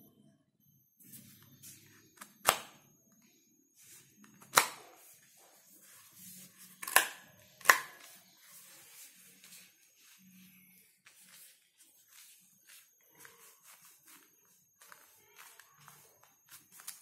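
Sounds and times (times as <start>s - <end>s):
soft handling rustle: 3.8s - 6.8s, 7.4s - 17.0s.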